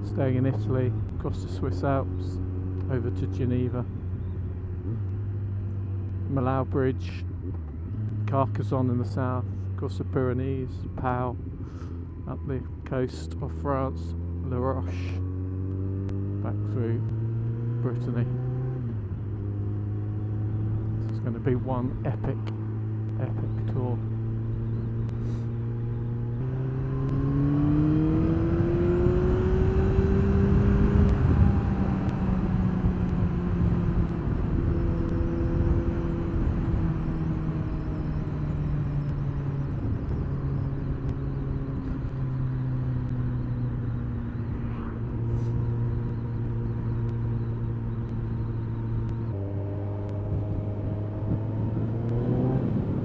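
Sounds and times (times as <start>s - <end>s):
motorcycle engine under way: 0.0s - 10.1s, 11.0s - 53.0s.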